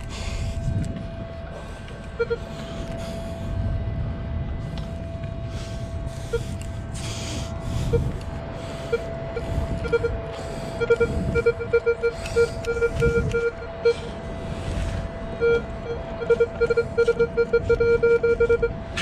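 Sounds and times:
low rumbling noise: 0.0 - 19.0
metal detector tone and beeps: 2.2 - 2.4, 8.9 - 10.2, 10.8 - 14.1, 15.4 - 18.8.

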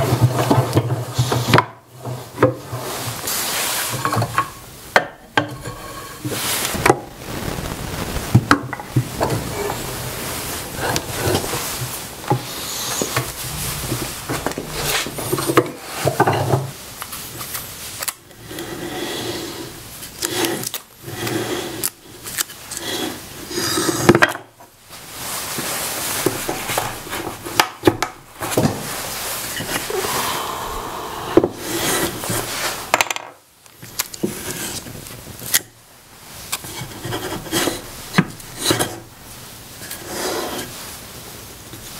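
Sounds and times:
wood rubbing and scraping: 8.7 - 16.8.

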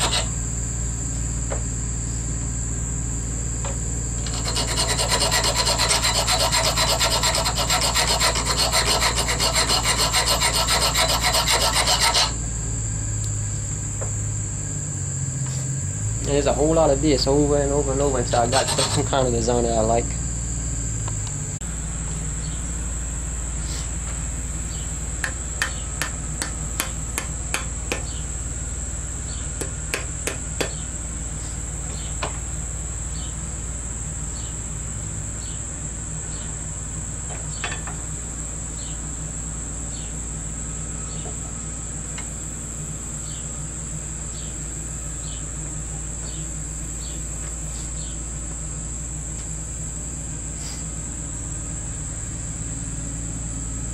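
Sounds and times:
insects chirring: 0.0 - 53.9
hammer tapping metal punch: 25.2 - 28.2, 29.6 - 30.8.

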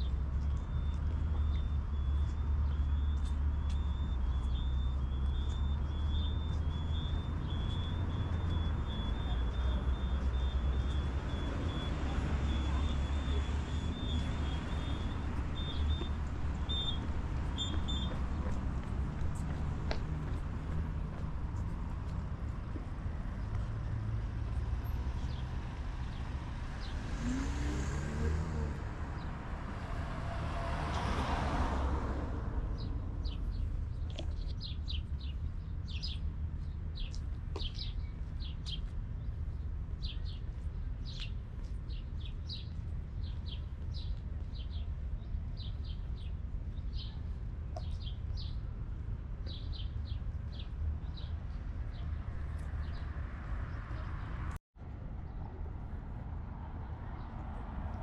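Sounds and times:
birds chirping: 0.0 - 30.1
vehicle passing: 0.0 - 33.9
road traffic rumble: 0.0 - 58.0.

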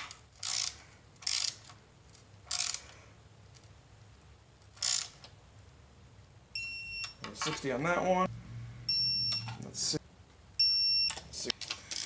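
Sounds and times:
torque wrench ratcheting: 0.4 - 1.7, 2.5 - 2.8, 4.8 - 5.2.

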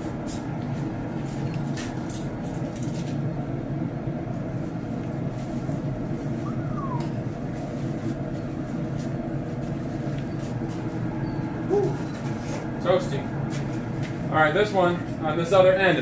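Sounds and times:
smoker low rumble: 0.0 - 16.0.

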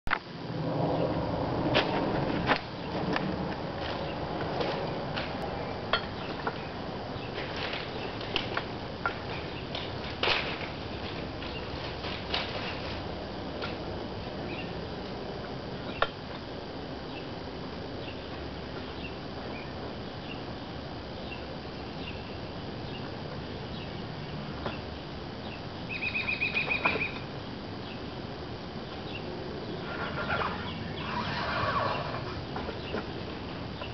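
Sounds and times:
outdoor background noise: 0.0 - 33.9
footsteps on railroad track: 1.7 - 5.6, 7.2 - 13.8.

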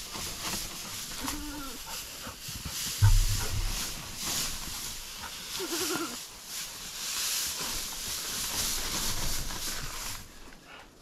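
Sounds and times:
rustling and crunching: 0.0 - 10.8
goat bleating: 1.2 - 1.8, 5.6 - 6.2.

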